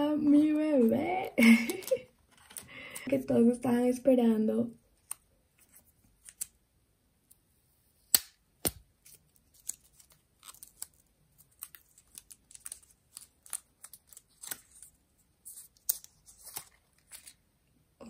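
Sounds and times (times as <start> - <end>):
plastic film crinkling: 0.5 - 3.1, 9.0 - 17.4.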